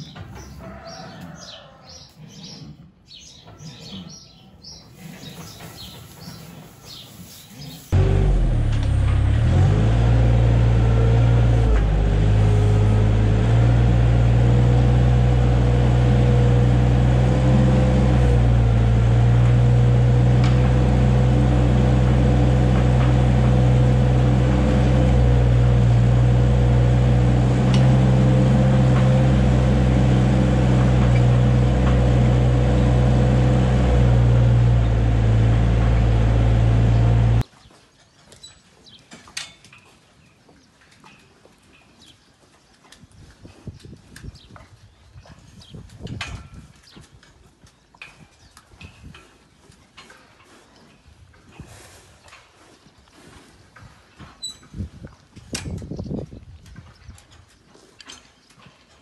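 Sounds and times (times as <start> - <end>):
loader engine running: 7.9 - 37.4.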